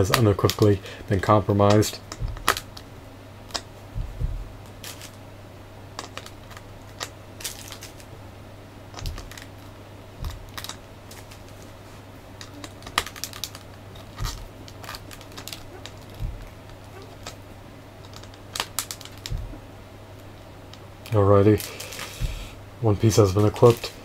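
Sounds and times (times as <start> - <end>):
dull thumps: 0.0 - 20.9, 21.6 - 22.8
steady low hum: 0.0 - 24.0
plastic parts clicking together: 10.2 - 11.6, 12.4 - 17.4, 18.0 - 19.5.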